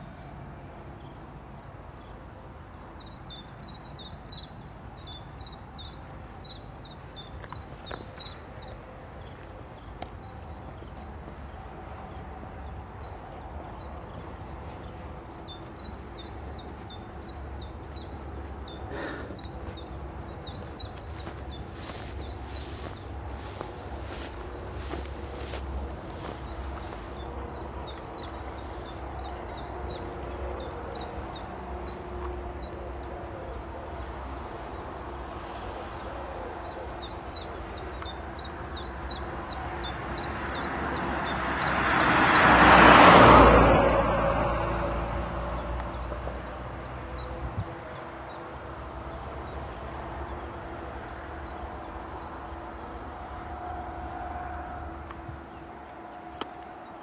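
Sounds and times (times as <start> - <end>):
vehicle driving past: 19.4 - 36.0, 37.4 - 57.0.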